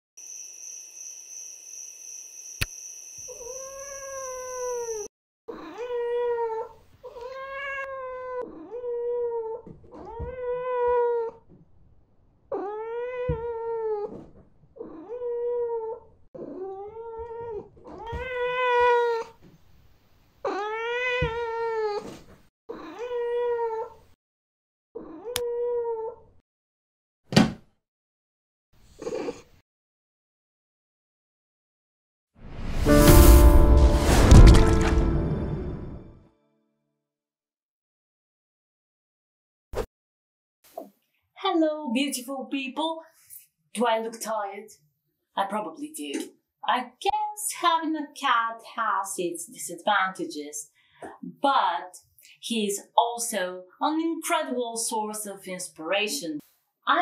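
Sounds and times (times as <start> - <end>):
crickets chirping: 0.2 - 5.1
cat meowing: 3.3 - 11.4, 12.5 - 14.1, 14.8 - 19.4, 20.4 - 22.0, 22.7 - 24.0, 25.0 - 26.2.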